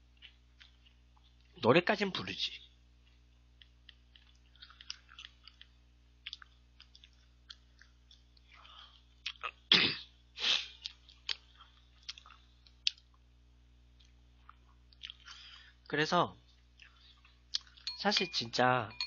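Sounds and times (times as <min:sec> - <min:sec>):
crunchy eating mouth noises: 0:00.0 - 0:01.6, 0:03.0 - 0:09.8, 0:10.4 - 0:13.2, 0:14.0 - 0:15.6, 0:16.4 - 0:17.9
sneeze-like burst of breath: 0:09.7 - 0:10.8.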